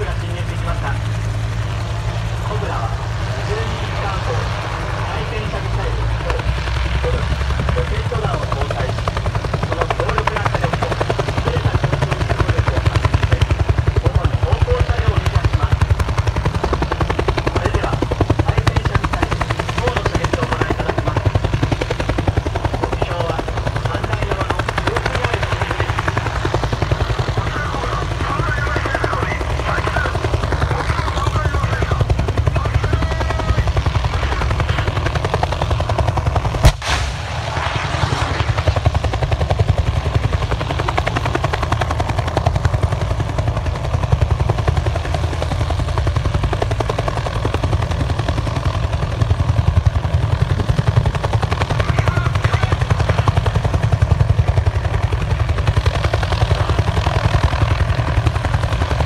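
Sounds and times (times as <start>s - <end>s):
helicopter rotor chopping: 0.0s - 59.0s
loud gunfire bang: 36.6s - 37.8s.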